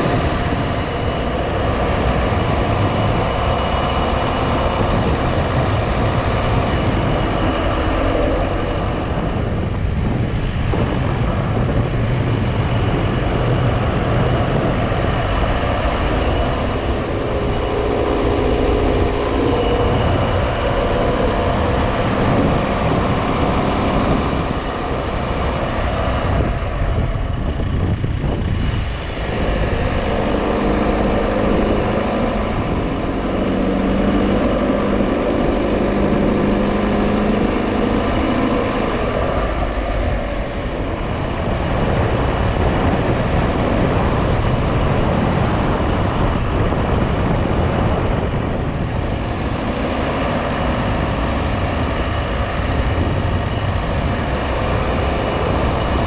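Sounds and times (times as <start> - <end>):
car engine hum: 0.0 - 56.0
tyres on wet road: 12.1 - 56.0.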